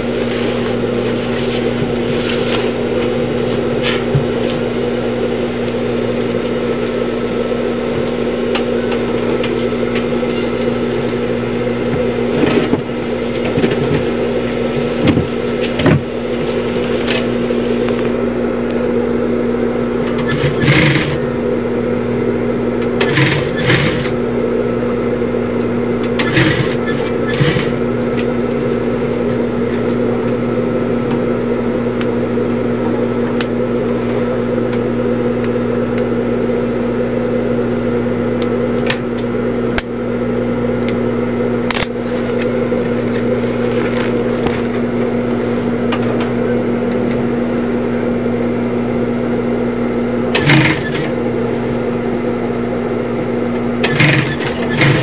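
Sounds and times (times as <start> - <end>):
sewing machine motor humming: 0.0 - 32.0, 40.8 - 48.2, 50.1 - 52.4, 53.3 - 55.0.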